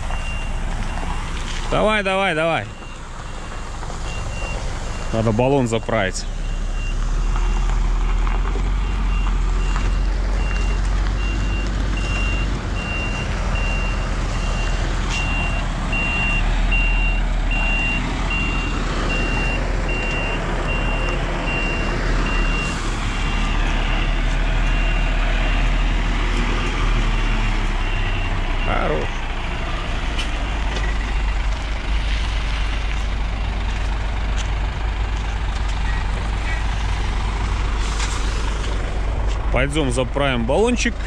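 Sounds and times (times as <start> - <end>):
diesel engine running: 0.0 - 41.0
reversing alarm beeps: 0.1 - 1.3, 2.6 - 7.6, 8.8 - 25.7, 27.3 - 28.9.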